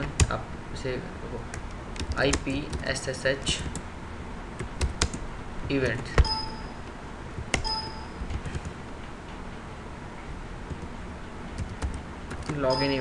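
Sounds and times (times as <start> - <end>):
short electronic chimes: 6.2 - 6.8, 7.6 - 8.2, 12.6 - 13.0.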